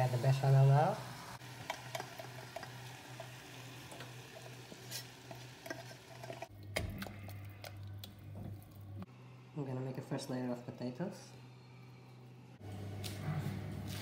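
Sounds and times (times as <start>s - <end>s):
thick mixture being stirred: 3.9s - 8.9s.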